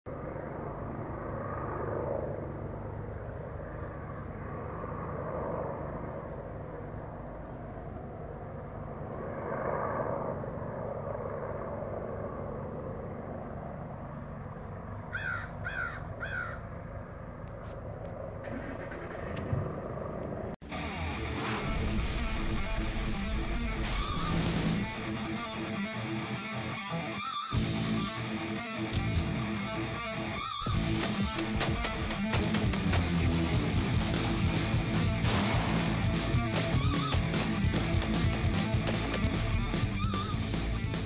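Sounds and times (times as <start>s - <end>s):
helicopter rumble: 0.1s - 41.0s
crow cawing: 15.1s - 16.8s, 27.0s - 28.3s, 30.2s - 30.8s, 36.6s - 37.4s, 39.7s - 40.6s.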